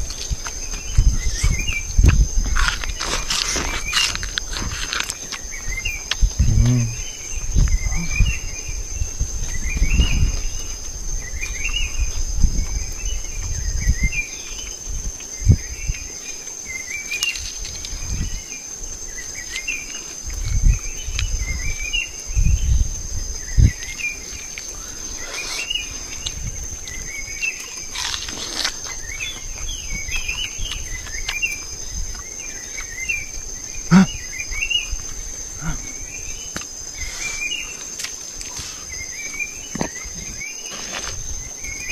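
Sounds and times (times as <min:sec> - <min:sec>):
low thumps and rumbles: 0:00.0 - 0:14.2
insect chirping call: 0:00.0 - 0:41.9
insects high-pitched drone: 0:00.0 - 0:41.9.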